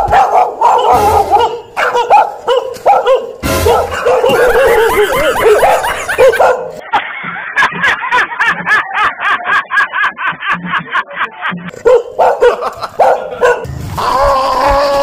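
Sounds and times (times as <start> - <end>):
dog drawn-out cry: 0.0 - 6.7
recorded dog barking from speaker: 0.0 - 6.8, 11.7 - 13.7.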